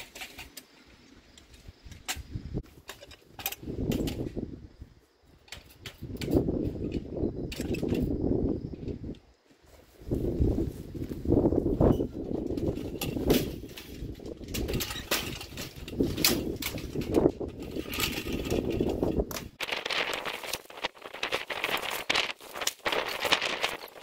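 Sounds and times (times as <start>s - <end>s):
cart and board clattering: 0.0s - 0.7s, 11.9s - 24.0s.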